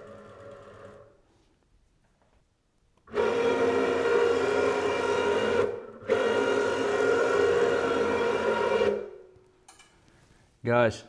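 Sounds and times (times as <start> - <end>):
servo motor whining: 3.1 - 9.2.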